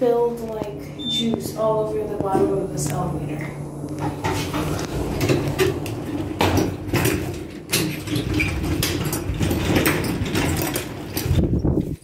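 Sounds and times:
low steady hum: 0:00.0 - 0:11.3
knocks and rattles of grocery wagon: 0:05.2 - 0:12.0.

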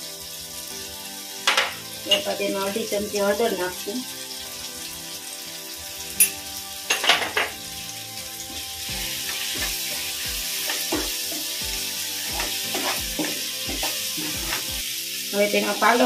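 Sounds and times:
food sizzling in a pan: 0:00.0 - 0:16.0
spatula stirring and scraping: 0:08.5 - 0:11.6, 0:12.2 - 0:14.8.

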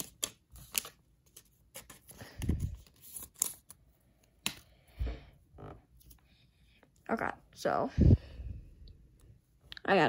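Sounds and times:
trading cards clicking and rustling: 0:00.0 - 0:03.8.

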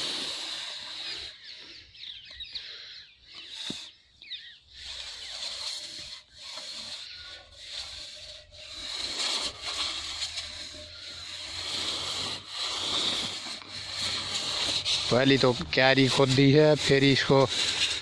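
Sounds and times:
steady high-pitched hiss: 0:00.0 - 0:01.5
hands scraping over loose soil: 0:00.0 - 0:01.7, 0:03.4 - 0:04.0, 0:04.6 - 0:18.0.

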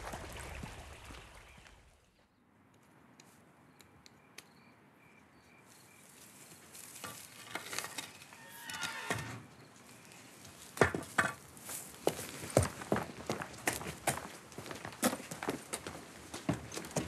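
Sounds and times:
faint repeated high chirp: 0:03.6 - 0:06.1
hay rustling and crackling: 0:06.0 - 0:08.0.

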